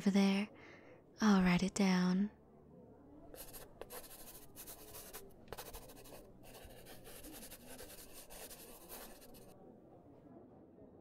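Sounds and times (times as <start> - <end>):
pen scratching on paper: 3.3 - 9.5.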